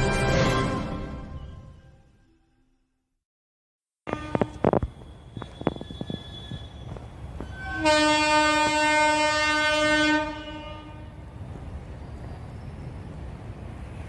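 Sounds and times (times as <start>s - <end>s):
train horn blast: 4.1s - 4.8s, 5.4s - 11.2s.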